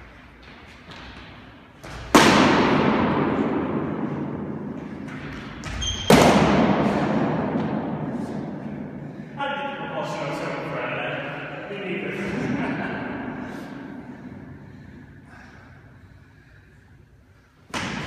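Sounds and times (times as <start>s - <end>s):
short squeak: 5.8s - 6.1s.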